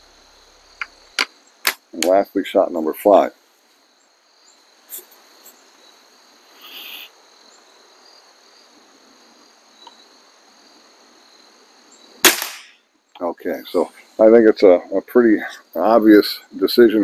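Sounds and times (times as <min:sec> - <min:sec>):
crickets chirping: 0:00.0 - 0:17.0
short rustling hiss: 0:04.8 - 0:05.8, 0:06.5 - 0:07.2.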